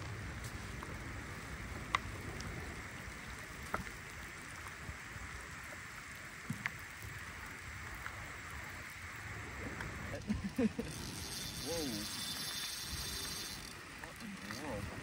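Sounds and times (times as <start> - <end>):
rain falling on river: 0.0 - 15.0
faint ticks: 1.8 - 8.6.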